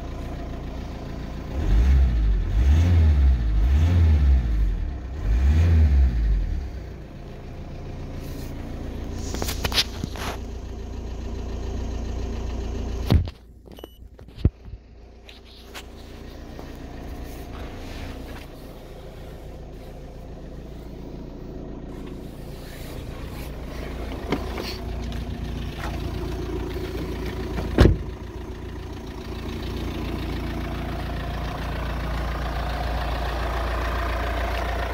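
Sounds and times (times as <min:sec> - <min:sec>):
van engine idling: 0:00.0 - 0:34.9
van door shutting thump: 0:27.5 - 0:28.1.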